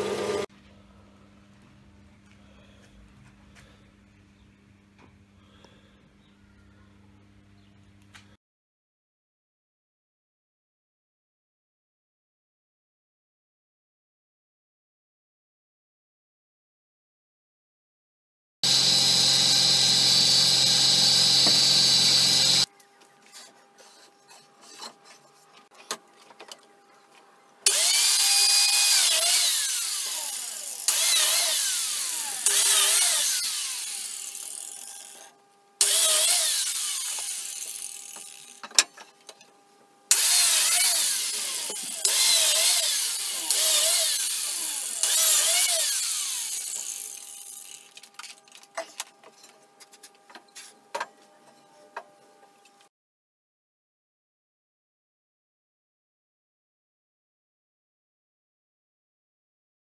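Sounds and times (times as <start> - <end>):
biscuit jointer motor whine: 0.0 - 0.4, 18.6 - 22.7, 27.7 - 38.6, 40.1 - 47.9.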